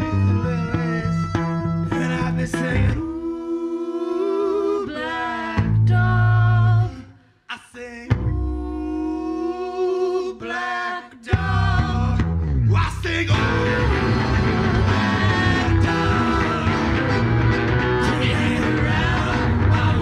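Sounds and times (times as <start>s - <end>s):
accordion chords and bass: 0.0s - 3.1s, 11.4s - 20.0s
plucked guitar: 0.0s - 3.1s, 11.4s - 20.0s.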